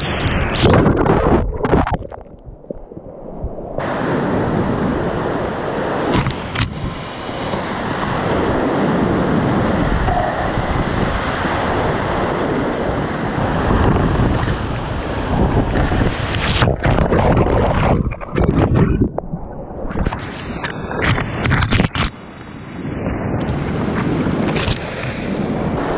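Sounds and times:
water splashing on camera: 0:00.0 - 0:03.0, 0:15.5 - 0:22.1.

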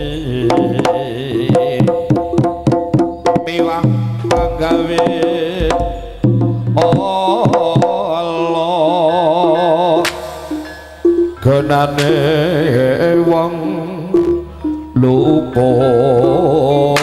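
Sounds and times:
hand drum strokes: 0:00.0 - 0:08.1
person singing: 0:00.0 - 0:17.0
pitched gamelan melody: 0:00.0 - 0:17.0.

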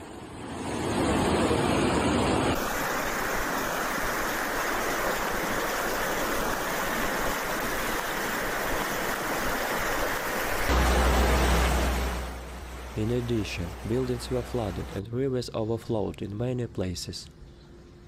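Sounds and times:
floodwater rushing: 0:00.3 - 0:15.0
water running down a street: 0:02.6 - 0:15.0.

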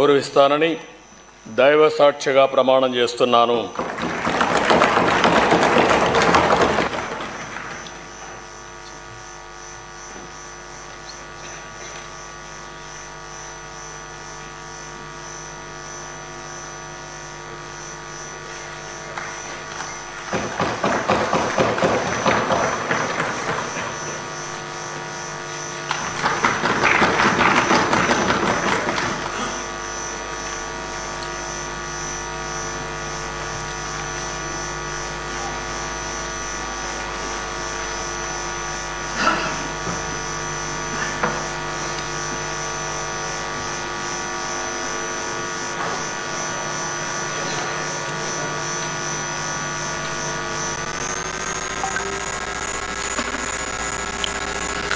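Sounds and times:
electrical buzz: 0:02.7 - 0:54.9
loud burst of noise: 0:03.6 - 0:08.7, 0:18.4 - 0:30.2, 0:49.2 - 0:54.9.

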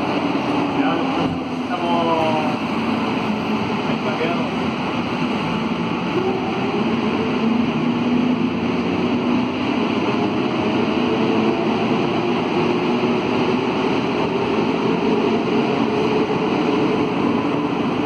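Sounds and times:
metro train rolling through tunnel: 0:00.0 - 0:18.0.

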